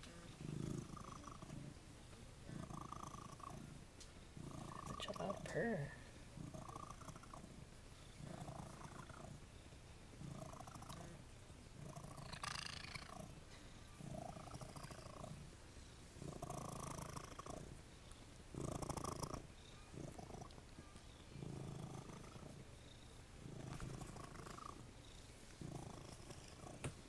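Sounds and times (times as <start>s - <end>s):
cat purring: 0.0s - 27.0s
rustling of fur: 13.1s - 27.0s.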